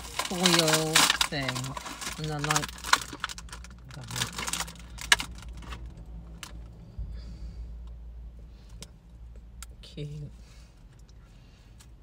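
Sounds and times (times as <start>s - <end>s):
foil wrapper crinkling: 0.0s - 5.9s.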